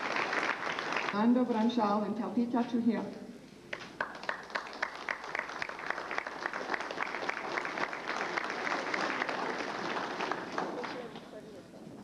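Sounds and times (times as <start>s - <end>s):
audience applauding: 0.0s - 1.2s, 3.7s - 11.4s.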